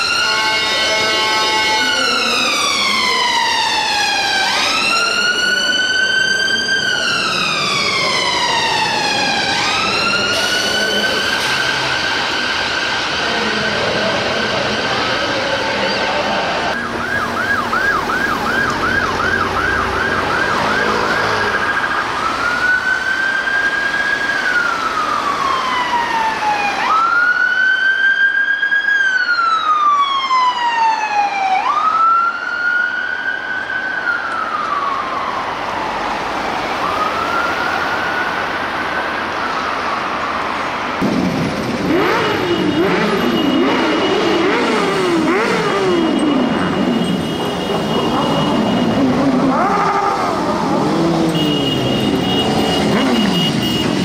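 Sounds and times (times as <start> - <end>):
two-tone siren yelp and wail: 0.0 - 16.1, 16.7 - 40.6, 41.9 - 54.0
motorcycle engines revving: 6.7 - 22.7, 41.0 - 54.0.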